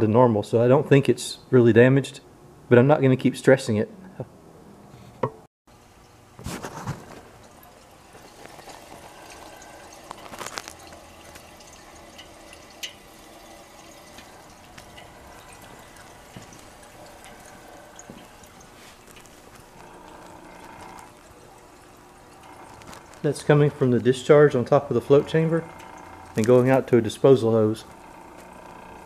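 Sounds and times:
faint bubbling with drips: 6.9s - 29.0s.

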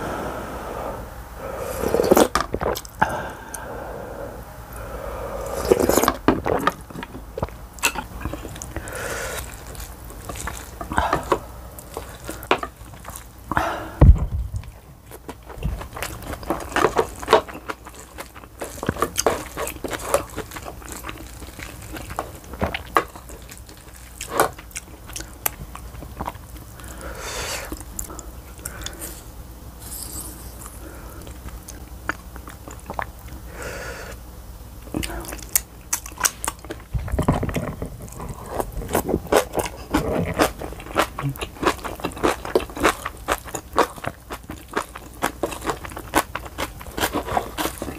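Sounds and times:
slurping noodles: 0.1s - 2.8s, 5.0s - 6.6s, 8.2s - 12.5s
chewing: 4.8s - 13.6s, 14.6s - 29.3s, 30.1s - 33.5s, 34.8s - 47.9s.

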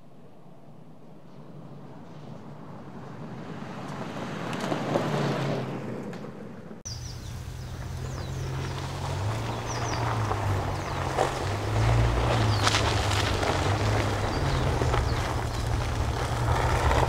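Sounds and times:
pickup truck driving on gravel: 2.5s - 17.0s
bird chirps: 6.9s - 11.4s, 12.3s - 16.0s
truck engine droning uphill: 6.9s - 17.0s.

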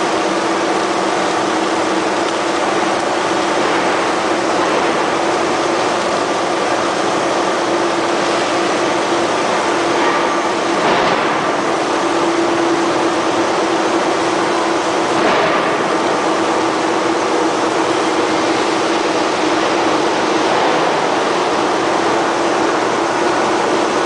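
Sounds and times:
industrial machinery din: 0.0s - 24.0s.

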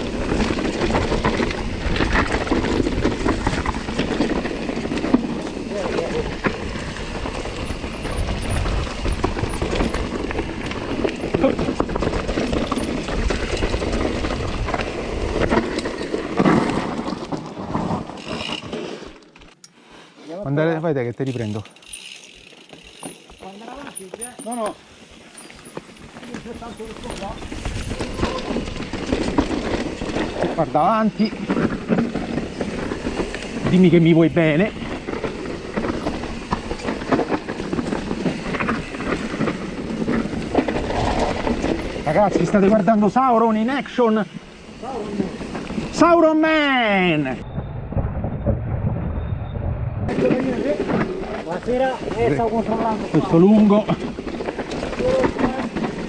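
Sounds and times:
wind buffeting microphone: 0.0s - 15.8s, 47.4s - 56.0s
bike tyre rumble and rattling: 0.0s - 19.6s, 20.9s - 56.0s
clicks and clatters: 50.1s - 56.0s.

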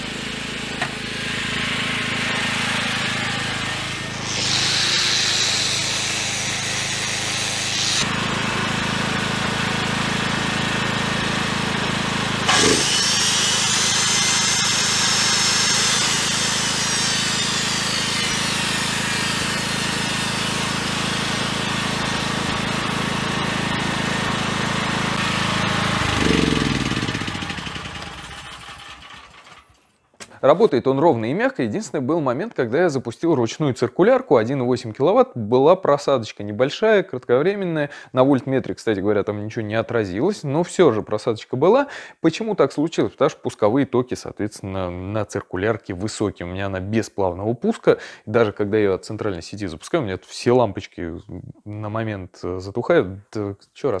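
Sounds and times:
generator engine running: 0.0s - 29.8s
power tool whirring: 0.0s - 30.1s
circular saw spinning down: 1.0s - 9.9s, 12.4s - 29.8s.

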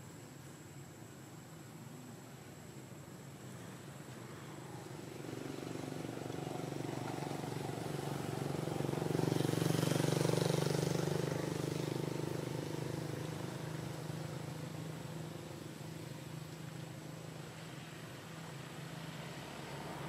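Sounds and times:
vehicle engine passing: 4.3s - 20.0s.

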